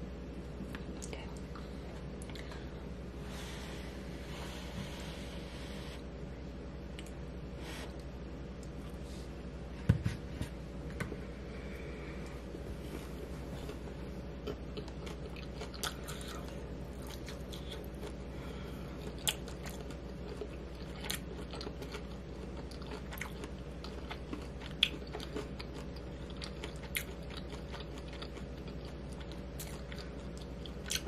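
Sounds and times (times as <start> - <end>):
steady low hum: 0.0 - 31.0
person chewing crunchy food: 13.2 - 31.0.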